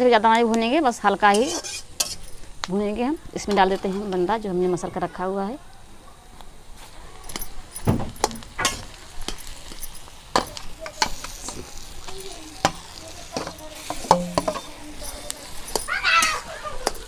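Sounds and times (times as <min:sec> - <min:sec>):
oil sizzling: 0:00.0 - 0:17.0
metal spatula scraping a pan: 0:01.2 - 0:02.4, 0:03.4 - 0:04.4, 0:08.2 - 0:17.0.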